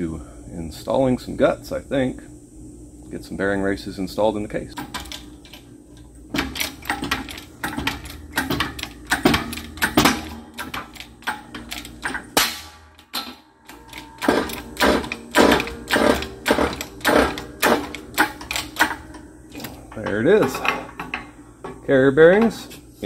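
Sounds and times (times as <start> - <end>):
hydraulic press pumping clanks: 4.8 - 5.7, 6.3 - 22.8.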